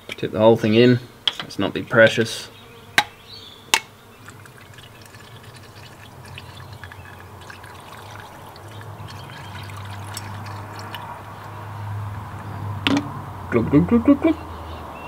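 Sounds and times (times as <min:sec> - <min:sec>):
liquid glugging through a funnel: 0:04.2 - 0:11.5.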